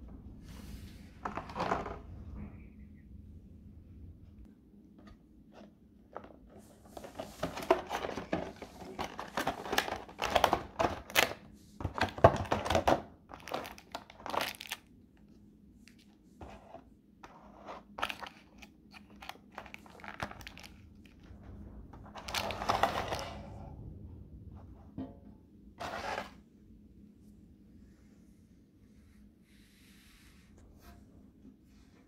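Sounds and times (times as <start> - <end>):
plastic packaging crinkling: 12.0 - 14.9, 18.0 - 21.1.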